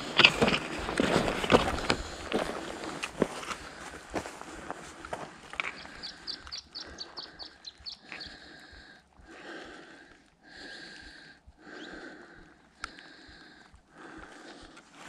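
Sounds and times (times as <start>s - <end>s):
footsteps on loose stones: 0.0s - 8.6s.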